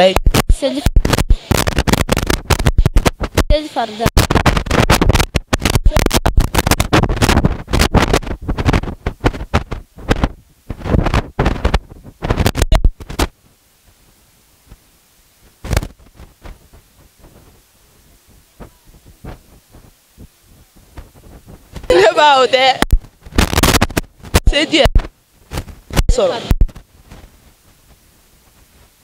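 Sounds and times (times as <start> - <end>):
crackling and rumbling on microphone: 0.0 - 29.0.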